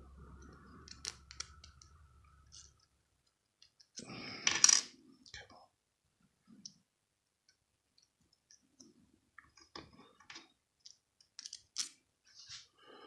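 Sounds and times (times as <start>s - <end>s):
small metal parts clicking: 0.9s - 1.9s.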